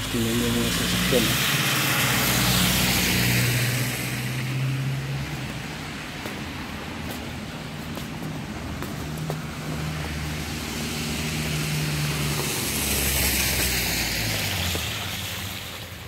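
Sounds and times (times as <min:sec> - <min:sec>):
car engine hum: 0:00.0 - 0:15.9
tyres hissing through slush: 0:00.0 - 0:16.0.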